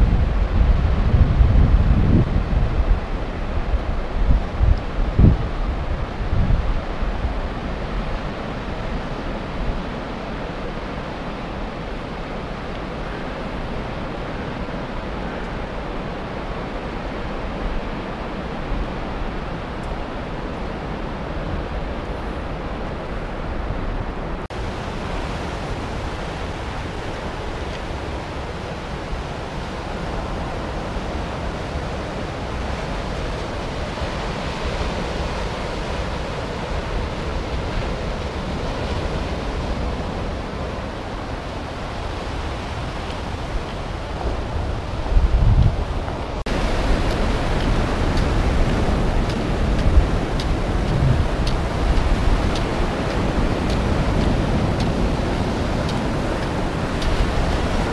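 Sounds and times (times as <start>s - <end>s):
sea surf breaking on shore: 0.0s - 57.9s
wind: 0.0s - 57.9s.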